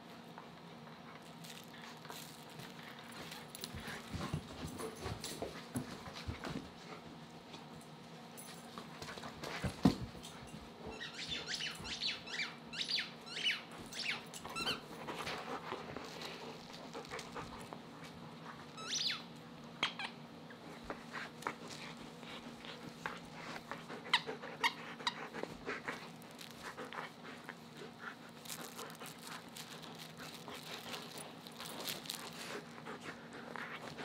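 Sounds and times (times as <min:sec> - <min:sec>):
squeaky dog toy squeaks: 0:18.8 - 0:19.2
dog chewing clicks: 0:25.1 - 0:34.0.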